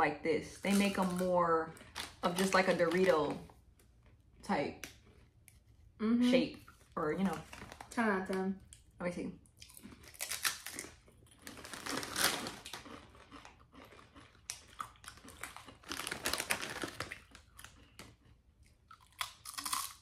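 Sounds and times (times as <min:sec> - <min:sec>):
chip bag crinkling: 0:00.7 - 0:03.4, 0:07.2 - 0:08.0, 0:09.8 - 0:18.4
chips crunching: 0:09.6 - 0:20.0.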